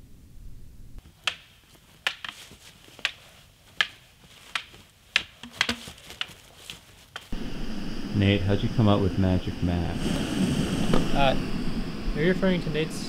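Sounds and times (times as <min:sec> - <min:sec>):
dry wood snapping: 0:01.0 - 0:07.3.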